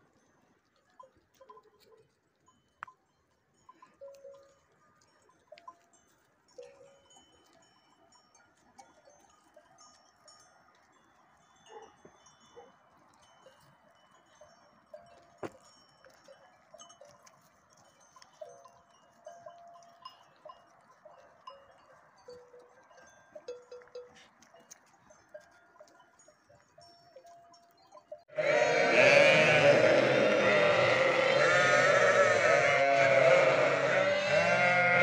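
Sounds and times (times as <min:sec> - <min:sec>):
sheep bells clinking: 0:00.0 - 0:35.0
many sheep bleating: 0:28.3 - 0:35.0.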